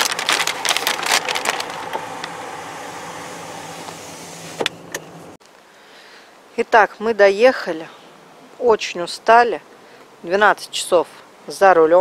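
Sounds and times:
rustles and clicks: 0:00.0 - 0:02.6
car engine and fan hum: 0:00.0 - 0:05.4.

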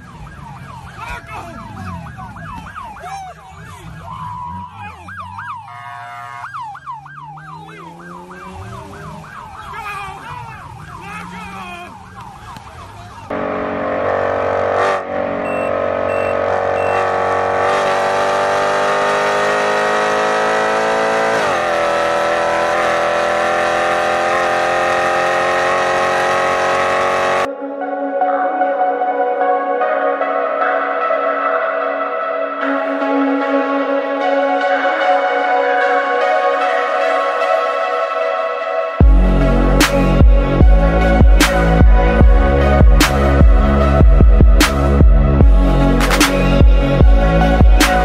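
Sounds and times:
siren yelping: 0:00.0 - 0:27.5
held chord of steady tones: 0:13.3 - 0:17.7, 0:27.5 - 0:44.4.

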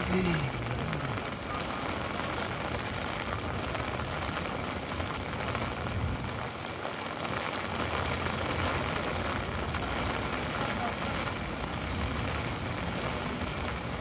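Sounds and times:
city traffic rumble: 0:00.0 - 0:14.0
rain pattering on an umbrella: 0:00.0 - 0:14.0.

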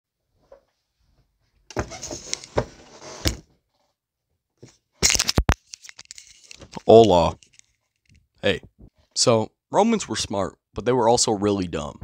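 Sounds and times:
rustling and shuffling: 0:04.6 - 0:09.2.

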